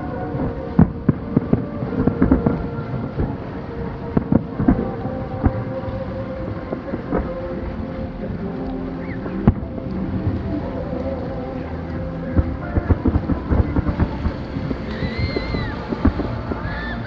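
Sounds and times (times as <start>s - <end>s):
distant fireworks booming: 0.0s - 5.8s, 12.3s - 17.0s
steady droning tone: 0.0s - 17.0s.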